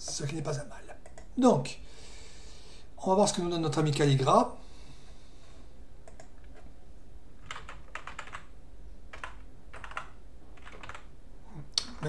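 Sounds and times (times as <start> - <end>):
keyboard keystroke clicks: 6.0 - 6.6.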